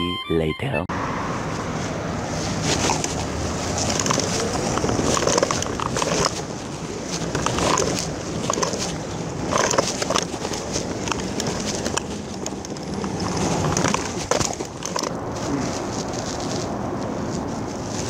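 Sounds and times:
plastic wheels rolling on asphalt: 1.8s - 18.0s.

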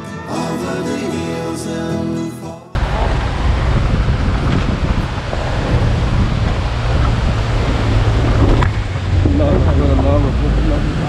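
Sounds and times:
car engine labouring: 2.8s - 11.0s
rushing river water: 2.8s - 11.0s
wind buffeting microphone: 2.8s - 11.0s.

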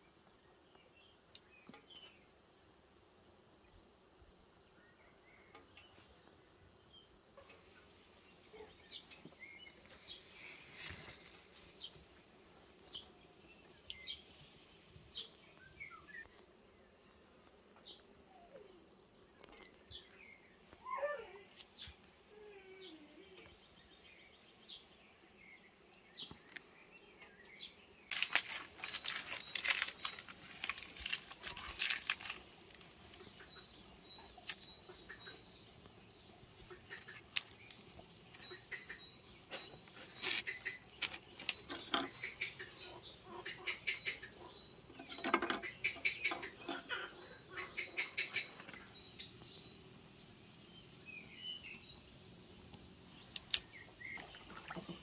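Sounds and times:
faint outdoor ambience: 0.0s - 55.0s
birds chirping: 7.4s - 55.0s
dense rustling and crackling: 9.7s - 12.2s, 28.1s - 33.8s, 39.4s - 42.4s.

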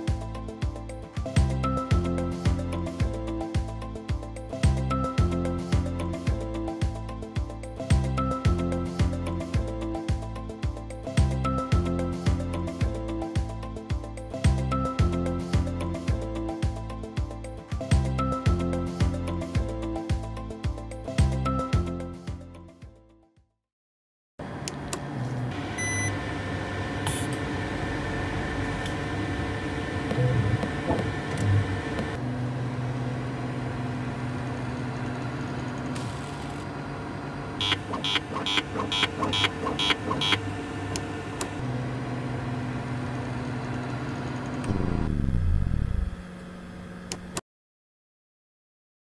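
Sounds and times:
motor hum: 24.4s - 47.4s
motor whine winding down: 37.4s - 47.4s.

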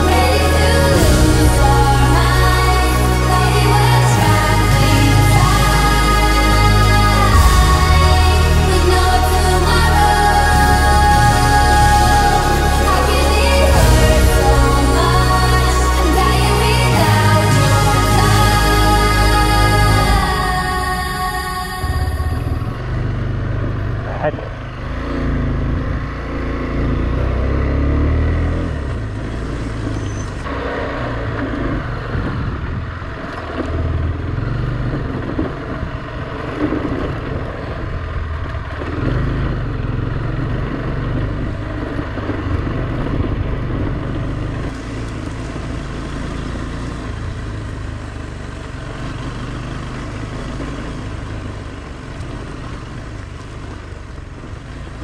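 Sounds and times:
motorcycle engine revving: 0.0s - 55.0s
steady rushing noise: 0.0s - 55.0s.

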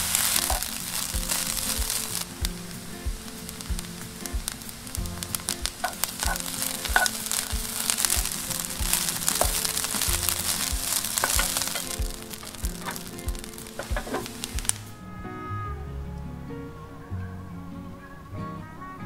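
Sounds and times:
fried rice sizzling in a pan: 0.0s - 14.9s.

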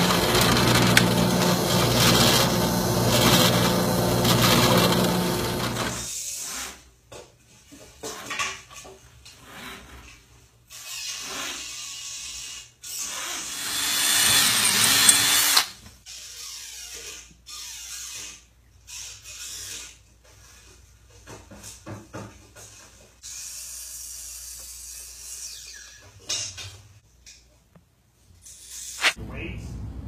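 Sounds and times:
power tool running: 0.0s - 6.1s, 13.5s - 15.8s.

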